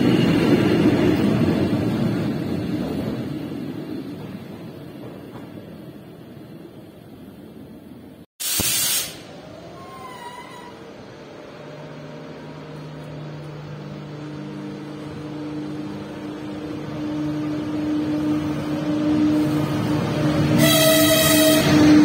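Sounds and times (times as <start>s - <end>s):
electric locomotive hum: 0.0s - 8.2s, 9.1s - 22.0s
train horn blast: 20.4s - 22.0s.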